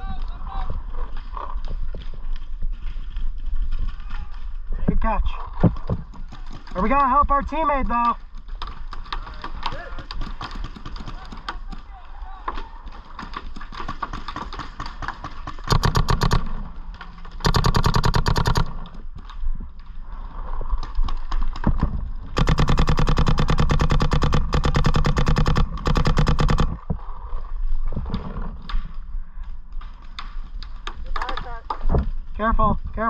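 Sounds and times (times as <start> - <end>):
paintball marker firing bursts: 10.2 - 11.8, 13.2 - 19.0, 22.3 - 26.8.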